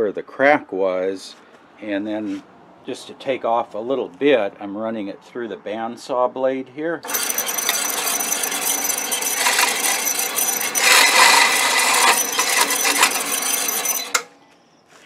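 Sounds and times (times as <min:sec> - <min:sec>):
bandsaw cutting steel: 0:07.1 - 0:14.3.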